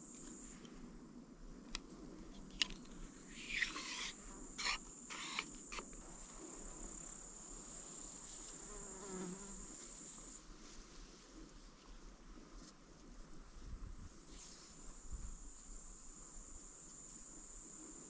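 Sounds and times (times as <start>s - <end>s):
insect trilling: 3.2s - 6.0s.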